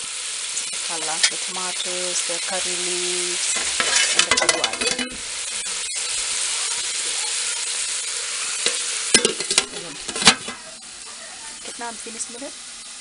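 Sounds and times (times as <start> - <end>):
curry sizzling in a metal pot: 0.0 - 13.0
metal lid knocking on pot: 8.7 - 10.6.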